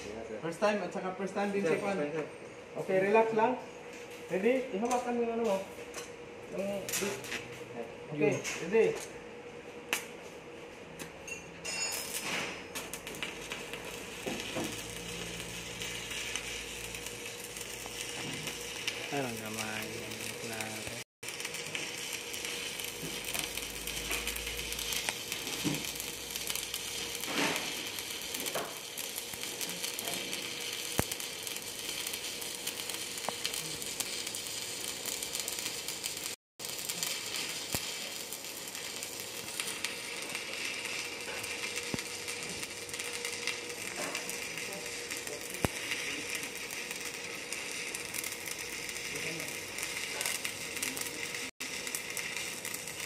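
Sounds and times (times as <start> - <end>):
welding arc sizzling and crackling: 0.0 - 53.0.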